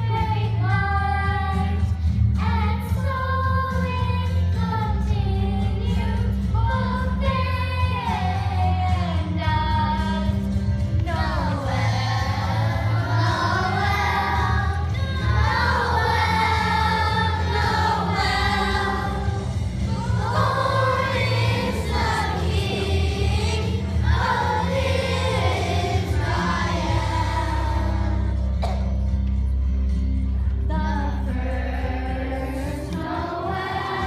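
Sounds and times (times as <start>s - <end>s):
low musical backing: 0.0s - 34.0s
children's choir singing: 11.0s - 28.8s, 30.8s - 34.0s.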